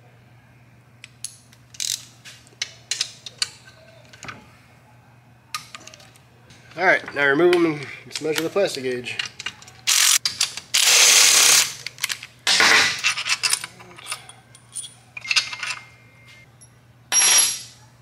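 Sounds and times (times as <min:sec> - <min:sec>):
metal bolts clattering: 0:12.0 - 0:15.9.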